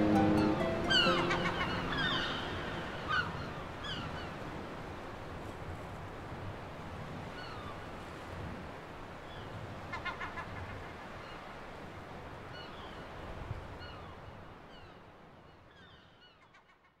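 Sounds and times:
high bird calls: 0.0 - 4.4
surf washing: 0.0 - 12.4.

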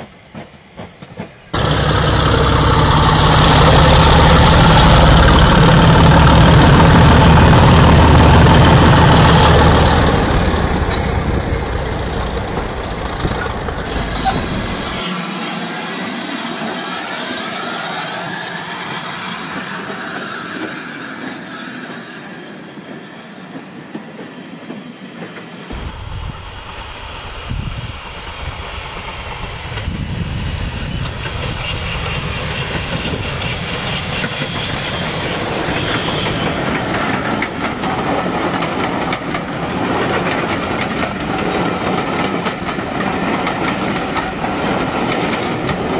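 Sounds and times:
model train motor noise: 1.6 - 22.0.

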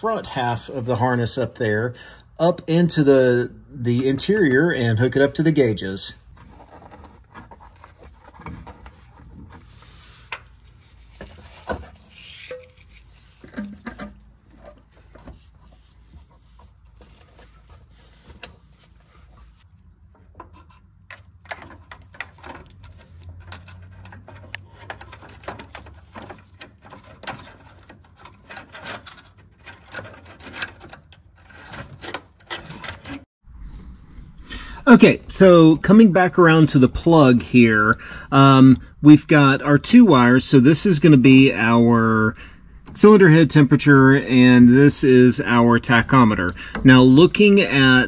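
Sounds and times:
hands handling wiring clicks and taps: 20.0 - 33.2.

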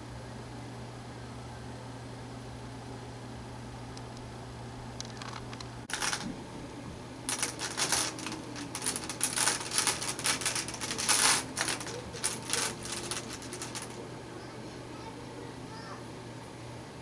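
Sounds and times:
light clicks and rustles: 5.0 - 6.3, 7.3 - 14.0.

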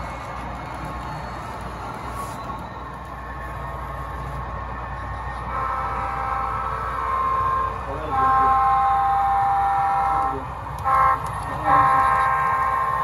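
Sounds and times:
multi-chime train horn blasts: 5.5 - 13.0.

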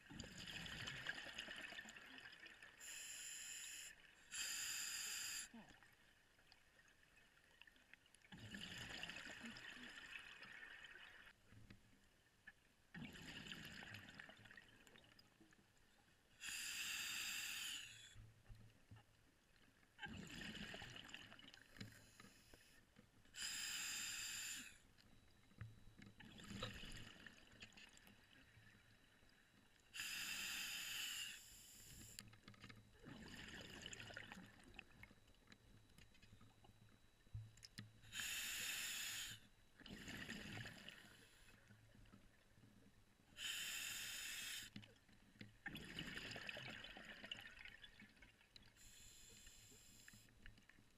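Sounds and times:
hissing regulator breaths: 2.8 - 5.5, 16.4 - 18.2, 23.4 - 24.8, 30.0 - 32.2, 38.1 - 39.5, 43.4 - 44.8, 48.8 - 50.3.

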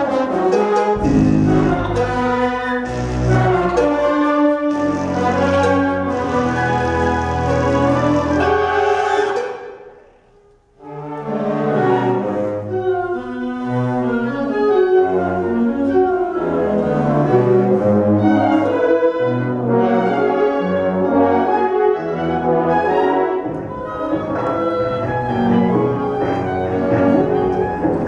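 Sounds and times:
concert band playing brass chords: 0.0 - 10.0.

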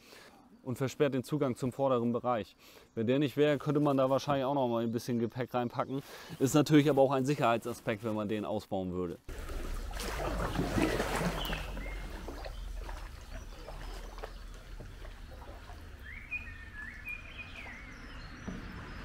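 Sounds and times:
water splash: 9.3 - 19.0
small bird chirping: 11.4 - 19.0
steady low rumble: 11.6 - 17.9.

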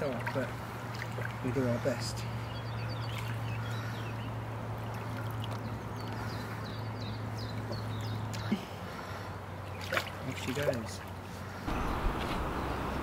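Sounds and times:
small birds chirping: 0.0 - 13.0
water sloshing and trickling: 0.0 - 13.0.

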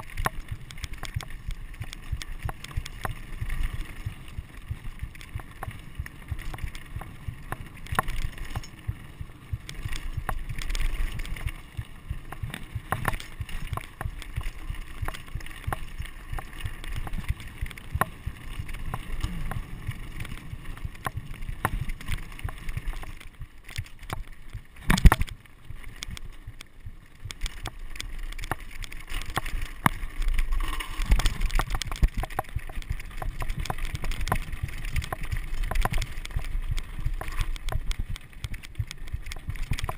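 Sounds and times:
bike rattling over stones: 0.0 - 39.9
bike tyres crunching on dirt: 0.0 - 39.9
wind rumble on microphone: 0.0 - 39.9.

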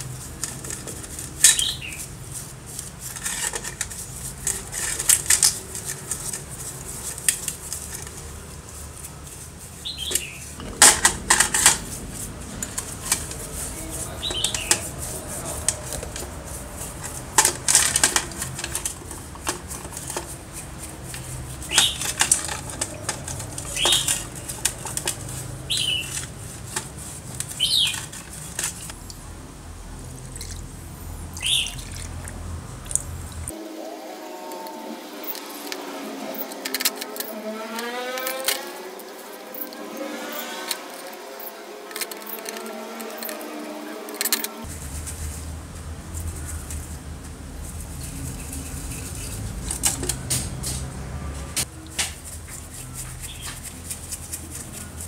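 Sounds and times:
brush scrubbing metal parts: 0.0 - 29.0, 35.1 - 55.0
metal parts knocking on bowl: 10.6 - 13.4.

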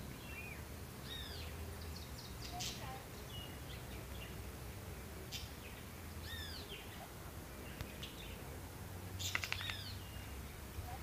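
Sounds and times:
bird chirps: 0.0 - 4.4, 5.3 - 8.4, 9.2 - 10.4.

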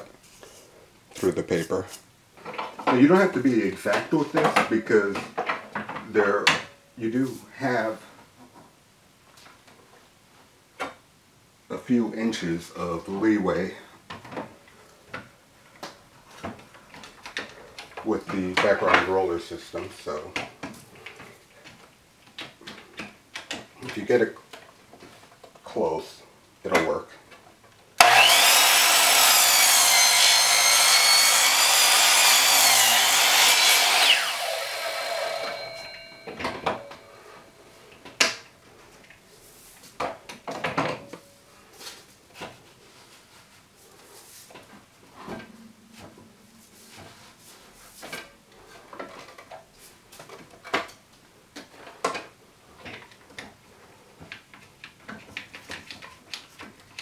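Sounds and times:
miter saw whining: 28.0 - 37.2.

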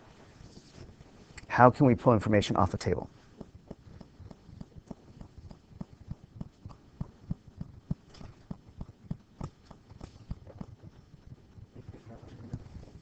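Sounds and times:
pen tapping on whiteboard: 3.3 - 11.1.

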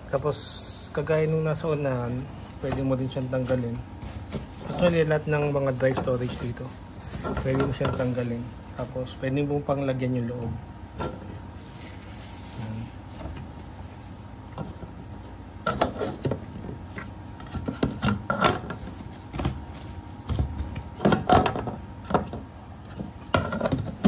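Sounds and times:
fabric bag rustling: 1.8 - 8.8.

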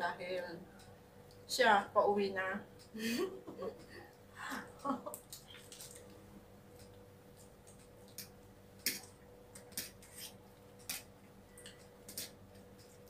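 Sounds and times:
faint steady hum: 0.0 - 13.0
chewing smacks: 5.2 - 6.2, 6.8 - 13.0.

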